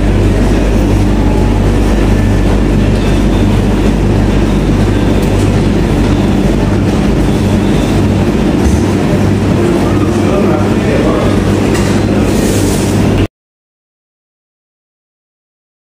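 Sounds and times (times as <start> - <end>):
tumble dryers rumbling: 0.0 - 13.3.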